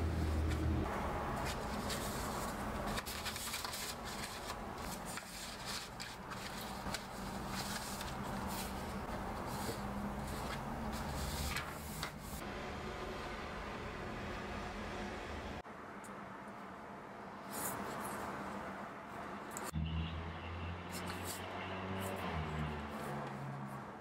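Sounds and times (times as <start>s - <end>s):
paper rustling: 1.3s - 12.4s.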